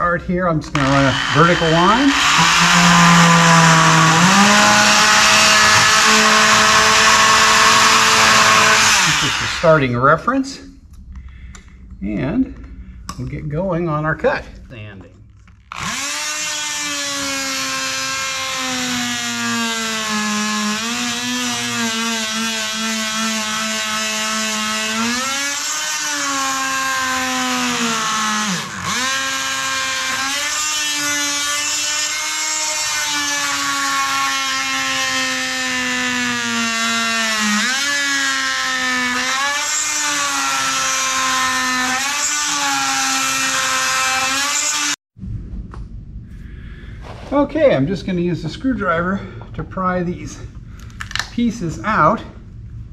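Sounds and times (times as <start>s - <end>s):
oscillating multi-tool cutting wood: 0.7s - 9.8s, 15.7s - 45.0s.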